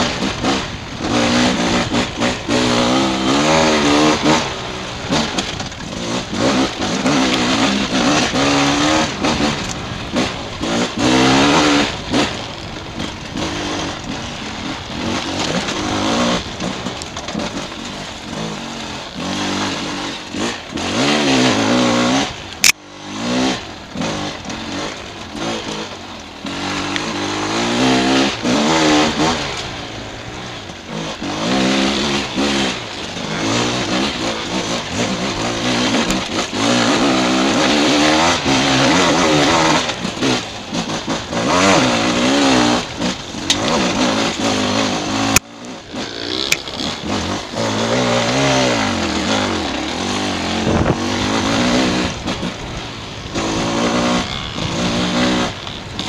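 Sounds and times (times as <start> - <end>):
dirt bike engine revving: 0.0 - 56.0
sharp click: 22.5 - 22.8.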